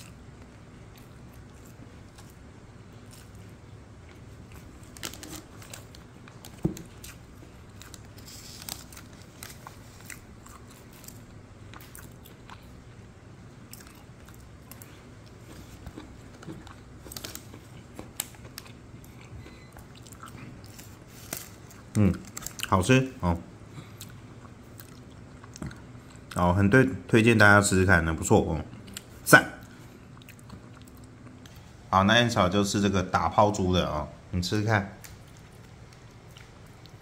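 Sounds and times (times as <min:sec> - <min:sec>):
person chewing chicken: 0:00.0 - 0:22.7, 0:23.7 - 0:26.4, 0:28.7 - 0:31.8, 0:35.0 - 0:37.0
small crunches and clicks: 0:20.0 - 0:22.7.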